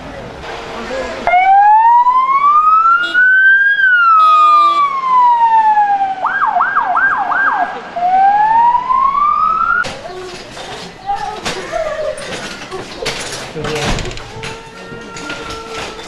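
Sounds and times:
ambulance siren wailing: 0:01.3 - 0:09.8, 0:14.7 - 0:16.0.

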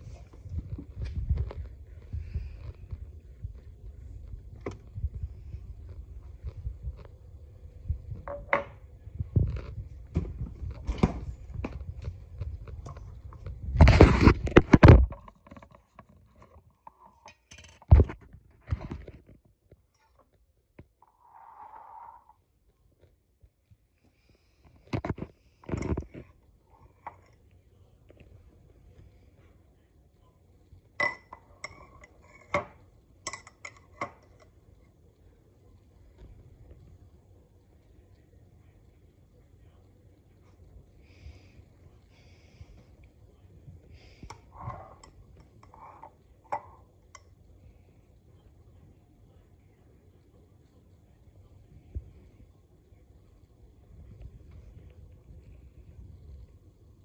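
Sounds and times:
objects knocking on stone countertop: 0:08.2 - 0:08.8.

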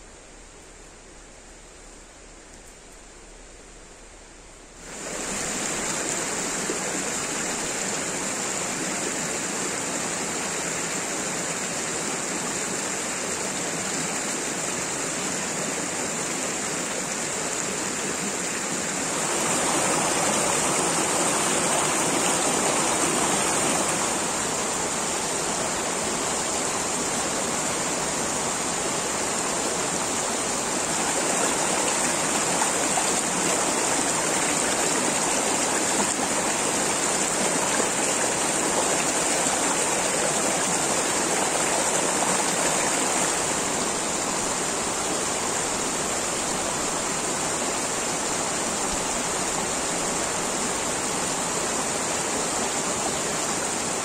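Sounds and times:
stream rushing over boulders: 0:00.0 - 0:54.0.

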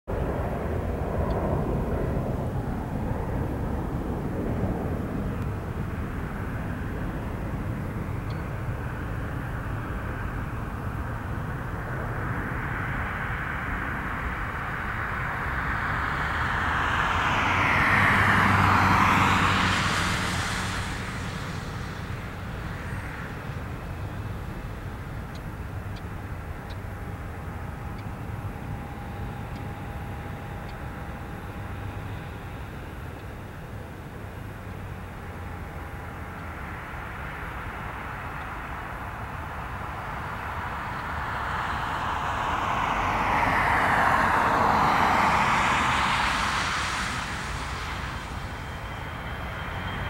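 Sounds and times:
distant jet engines running: 0:00.1 - 0:50.0
something passing close by: 0:40.6 - 0:50.0.

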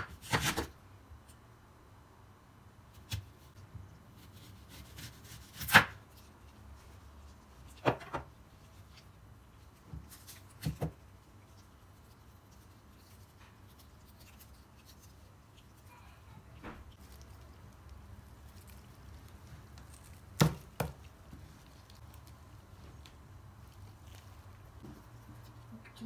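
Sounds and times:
knife cutting onion on board: 0:00.0 - 0:00.7, 0:04.2 - 0:06.1.

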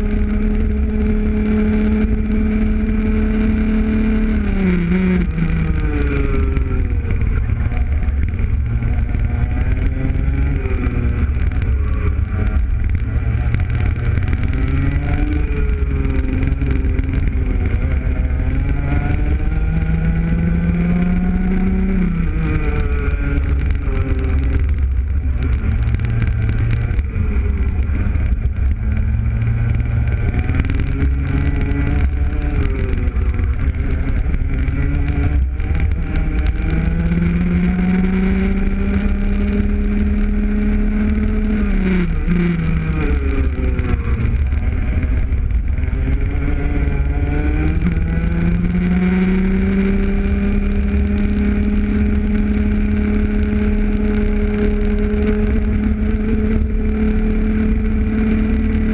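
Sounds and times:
kart engine at race pace: 0:00.0 - 0:58.9
low rumble of wind and vibration: 0:00.0 - 0:58.9.

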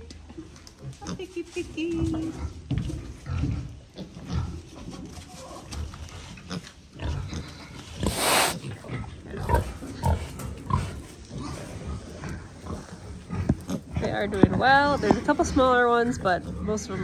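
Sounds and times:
rooting in straw: 0:04.0 - 0:08.8
piglets grunting: 0:06.4 - 0:17.0.

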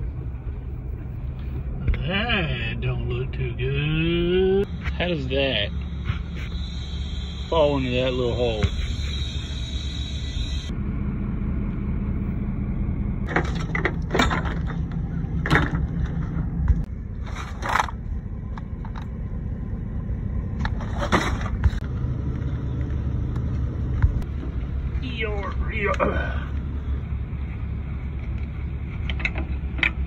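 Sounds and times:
engine running with low rumble: 0:00.0 - 0:30.0
parts knocking and scraping: 0:13.3 - 0:19.2, 0:20.6 - 0:21.9, 0:28.0 - 0:30.0.

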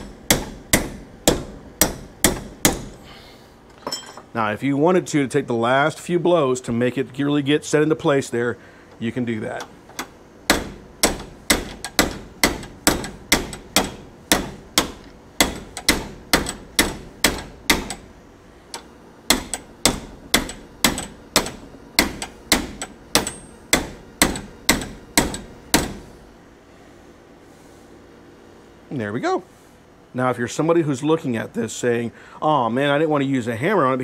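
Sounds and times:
hammer striking steel pin: 0:00.0 - 0:03.0, 0:10.5 - 0:18.1, 0:18.8 - 0:26.0.

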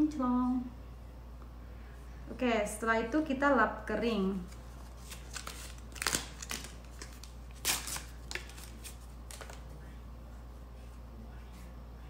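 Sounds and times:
foil packet crinkling: 0:04.5 - 0:09.7.

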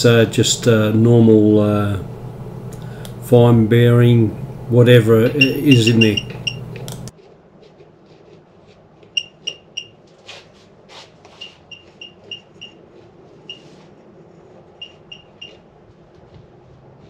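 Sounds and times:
metal detector beeps: 0:05.3 - 0:06.6, 0:09.2 - 0:10.0, 0:11.4 - 0:12.8, 0:14.8 - 0:15.6.

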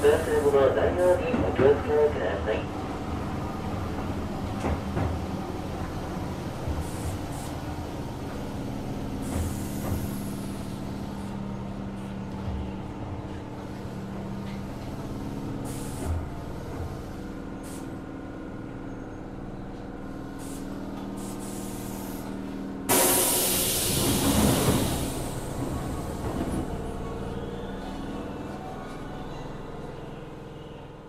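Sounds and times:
air brake hisses: 0:20.4 - 0:25.5.

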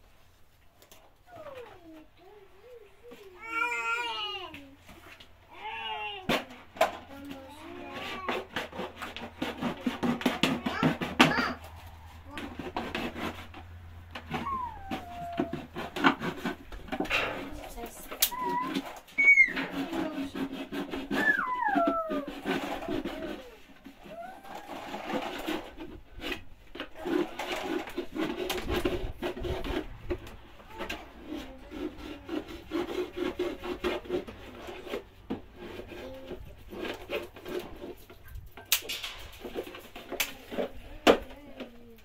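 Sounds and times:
knife sawing through plastic: 0:02.6 - 0:42.0.

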